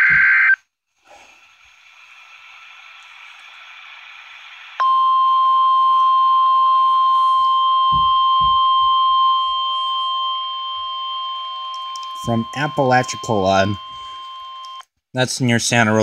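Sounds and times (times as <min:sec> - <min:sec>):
radio hiss: 0:00.0 - 0:05.1, 0:11.8 - 0:14.6
loud steady alarm tone: 0:04.8 - 0:14.8.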